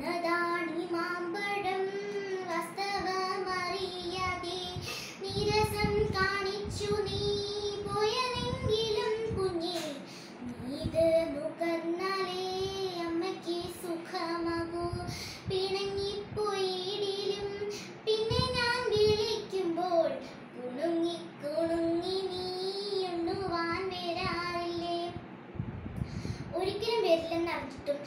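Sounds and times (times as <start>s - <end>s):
girl singing: 0.0s - 25.3s, 26.2s - 28.0s.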